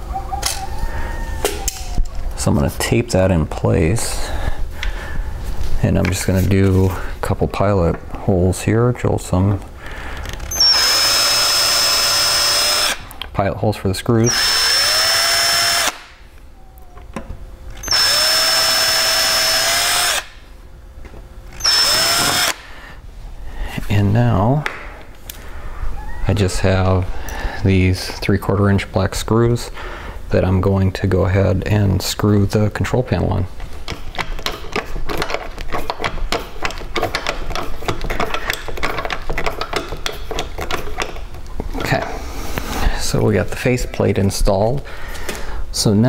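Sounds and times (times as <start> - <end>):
cordless drill drilling wood: 10.4 - 13.0, 14.2 - 16.1, 17.8 - 20.4, 21.6 - 22.6
screwdriver ratchet clicking: 21.6 - 22.6.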